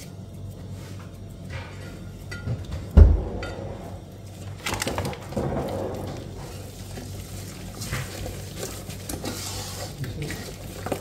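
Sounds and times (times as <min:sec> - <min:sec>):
stirring thick paste in a pot: 0:03.4 - 0:11.0
utensil scraping against pot: 0:05.4 - 0:11.0.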